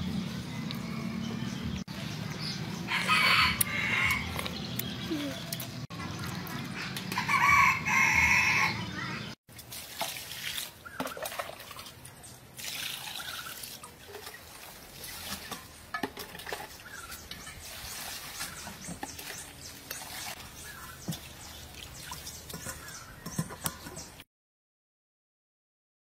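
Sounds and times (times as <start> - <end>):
rooster crowing: 2.9 - 4.4, 7.2 - 8.8.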